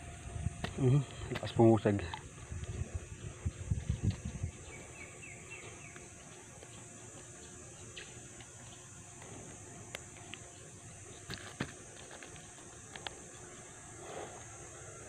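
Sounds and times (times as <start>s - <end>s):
bird chirping: 3.2s - 9.0s.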